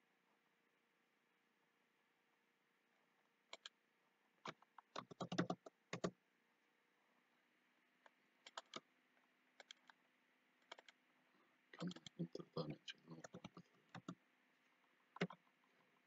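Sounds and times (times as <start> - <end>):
mouse clicks: 3.5 - 3.8, 8.0 - 8.8, 9.6 - 10.0, 10.6 - 11.0, 15.2 - 15.4
computer keyboard taps: 4.5 - 6.1, 15.2 - 15.4.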